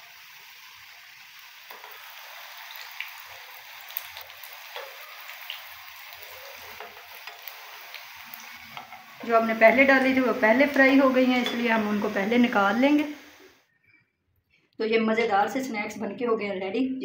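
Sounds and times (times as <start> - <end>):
dough deep-frying in hot oil: 0.0 - 13.6
oil popping and crackling: 1.3 - 12.0.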